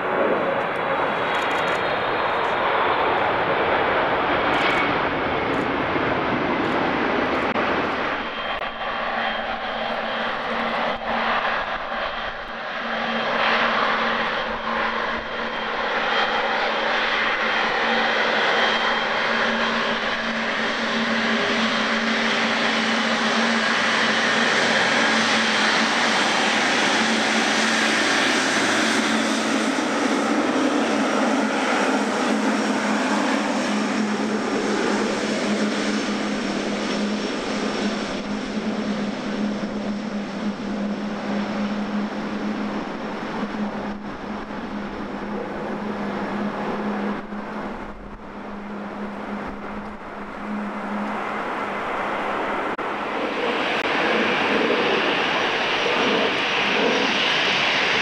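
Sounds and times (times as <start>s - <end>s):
jet engines whining: 0.0s - 58.0s.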